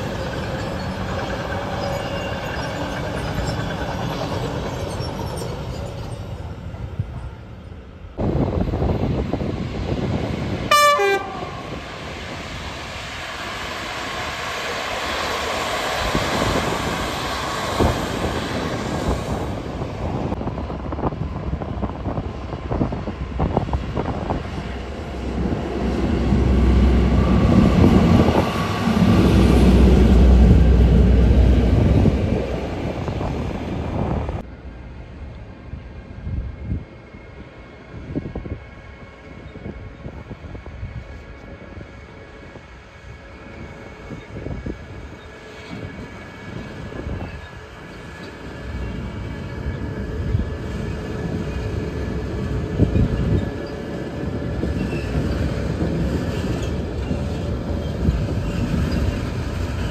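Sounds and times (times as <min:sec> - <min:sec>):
heavy low train rumble: 0:00.0 - 0:59.9
train horn blast: 0:10.7 - 0:11.8.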